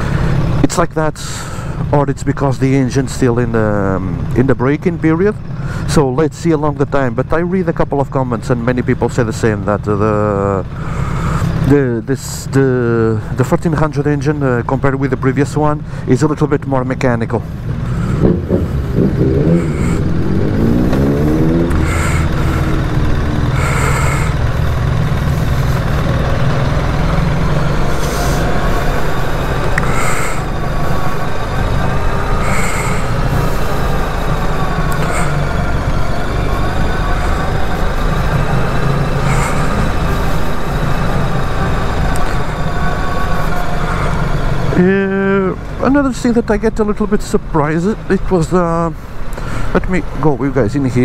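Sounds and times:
motorcycle engine revving: 0:17.4 - 0:46.5.

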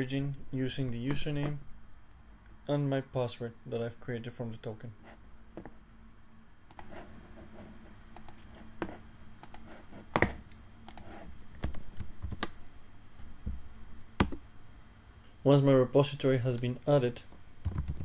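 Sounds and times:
keyboard and mouse clicks: 0:06.7 - 0:06.9, 0:08.2 - 0:12.6, 0:17.6 - 0:18.0.

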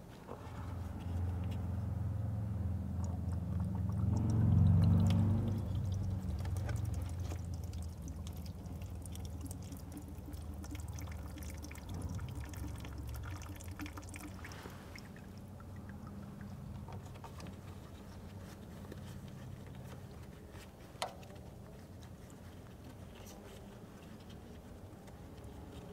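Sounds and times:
fingers clicking at a drain: 0:02.9 - 0:14.2.

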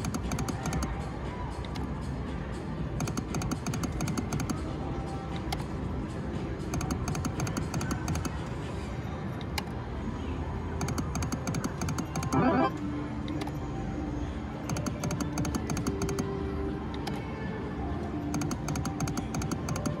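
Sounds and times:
rapid clicking: 0:00.0 - 0:00.9, 0:03.0 - 0:04.6, 0:06.8 - 0:08.4, 0:10.8 - 0:12.7, 0:14.7 - 0:16.2, 0:18.4 - 0:20.0
busy background noise: 0:00.0 - 0:20.0
slot machine music: 0:12.1 - 0:12.8.

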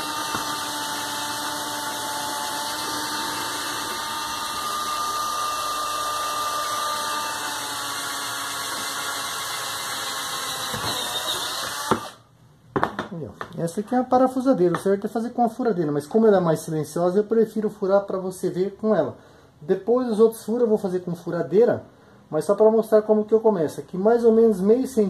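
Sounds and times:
cordless drill boring into bamboo: 0:00.0 - 0:12.2.

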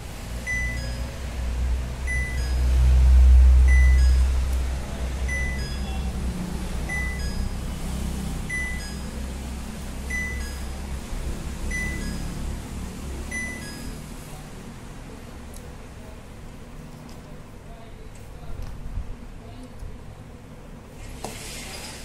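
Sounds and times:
washing machine short high beeps: 0:00.4 - 0:01.2, 0:02.1 - 0:02.8, 0:03.7 - 0:04.4, 0:05.3 - 0:06.1, 0:06.9 - 0:07.8, 0:08.5 - 0:09.2, 0:10.0 - 0:10.8, 0:11.7 - 0:12.4, 0:13.3 - 0:14.1.

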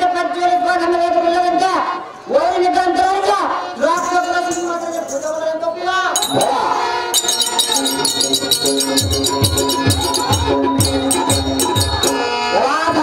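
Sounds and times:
jingling rattles: 0:03.9 - 0:12.2
drum beating: 0:06.2 - 0:12.2
steady held tone: 0:06.2 - 0:12.2.

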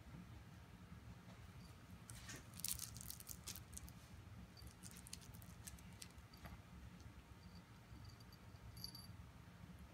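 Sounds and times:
crackling and rustling on fabric: 0:01.3 - 0:07.1.

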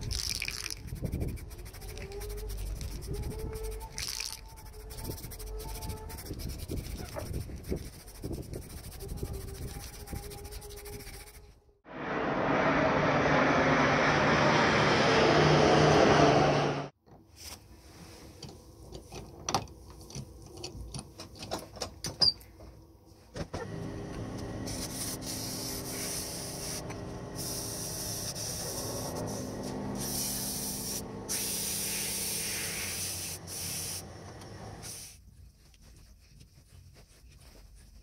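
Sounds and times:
sandpaper rubbing hiss: 0:00.1 - 0:11.5, 0:24.6 - 0:34.1, 0:34.8 - 0:35.3
lathe humming: 0:23.6 - 0:32.2.

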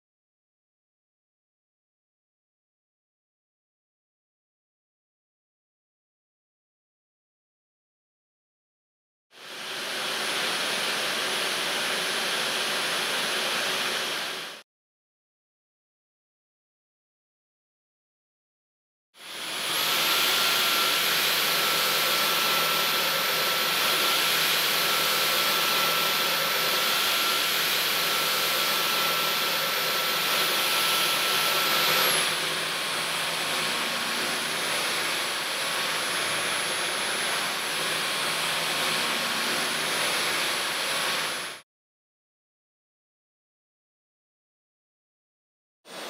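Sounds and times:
vacuum cleaner running: 0:09.4 - 0:14.6, 0:19.2 - 0:41.6.

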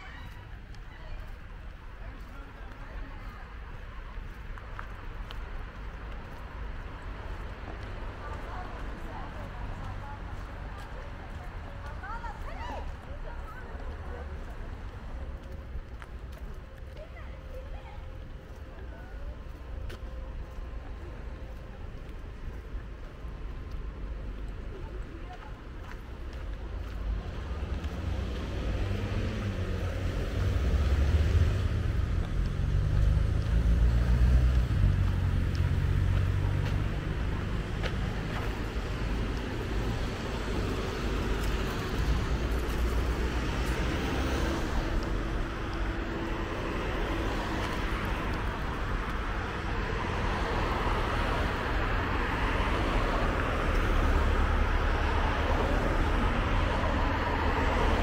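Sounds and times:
traffic low rumble: 0:00.0 - 0:58.0
vehicle engine hum: 0:13.0 - 0:58.0.

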